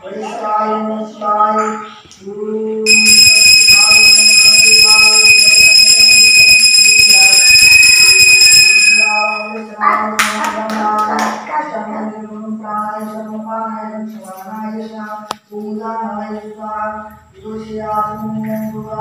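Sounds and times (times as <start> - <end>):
devotional singing: 0.0 - 19.0
temple bell ringing: 2.9 - 9.8.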